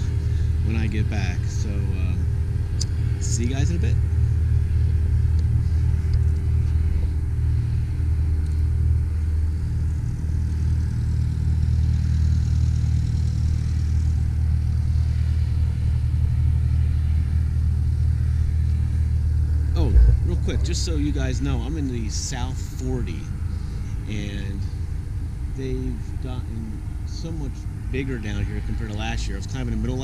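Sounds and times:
low engine hum: 0:00.0 - 0:30.0.

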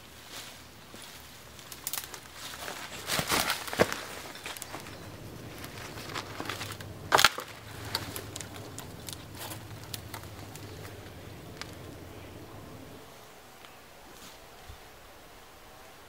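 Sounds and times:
footsteps through undergrowth: 0:00.0 - 0:13.0
twigs cracking underfoot: 0:00.3 - 0:13.0.

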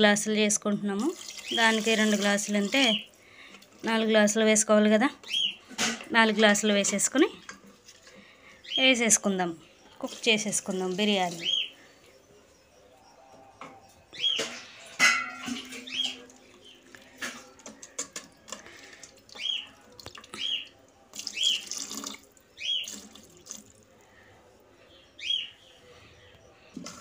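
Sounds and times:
spoon clinking against metal pot: 0:14.5 - 0:16.3.

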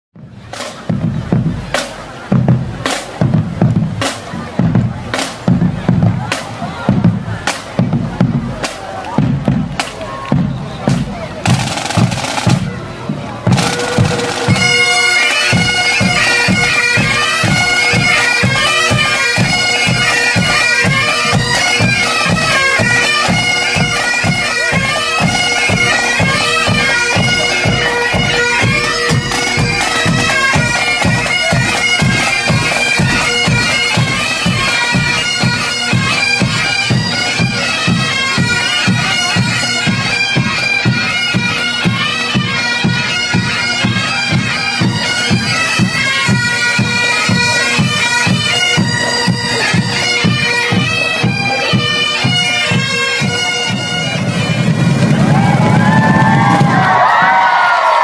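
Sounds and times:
regular drum beat: 0:00.2 - 0:43.0, 0:54.5 - 0:58.0
bagpipes melody with drone: 0:09.4 - 0:57.0.

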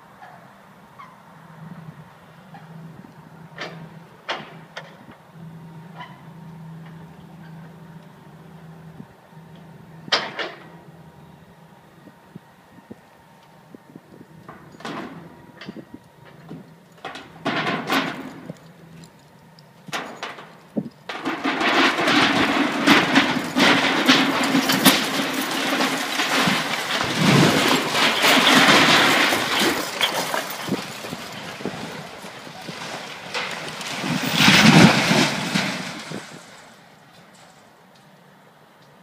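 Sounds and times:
concrete cracking and rumbling: 0:14.3 - 0:37.6
loud crash of collapse: 0:17.0 - 0:18.6, 0:21.1 - 0:36.9.

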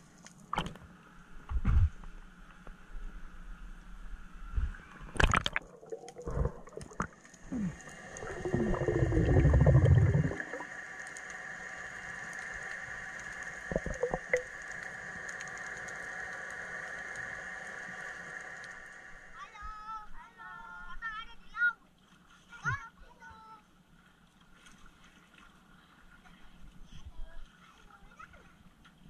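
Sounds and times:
steady hum with held tones: 0:00.0 - 0:21.5
gurgling water and bubbles: 0:04.5 - 0:19.4
cluster of clicks: 0:12.2 - 0:18.8.

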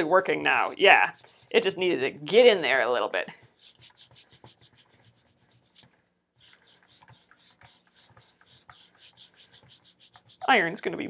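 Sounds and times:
cloth scrubbing metal plate: 0:00.0 - 0:02.0, 0:03.4 - 0:10.8.

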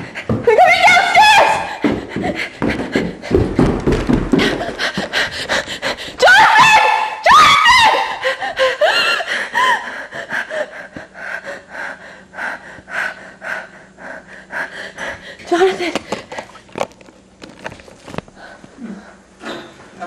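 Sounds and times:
person panting in panic: 0:01.6 - 0:03.6, 0:04.3 - 0:06.2, 0:08.1 - 0:15.4.

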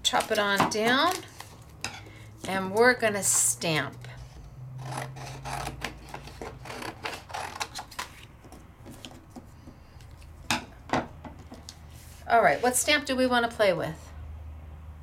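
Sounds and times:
paper being cut: 0:04.8 - 0:08.2.

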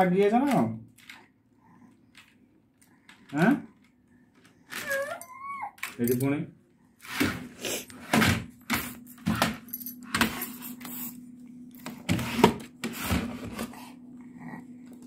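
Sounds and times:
steady low hum: 0:06.0 - 0:15.0.

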